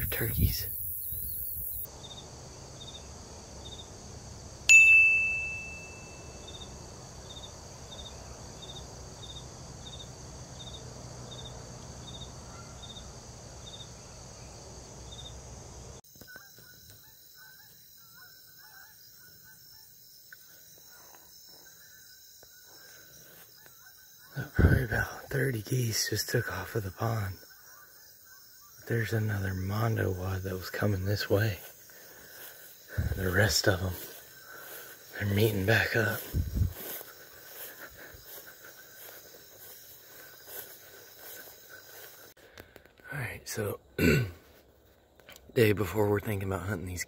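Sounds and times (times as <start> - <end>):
insect drone: 0.0 - 47.0
metallic ding ringing: 4.7 - 6.5.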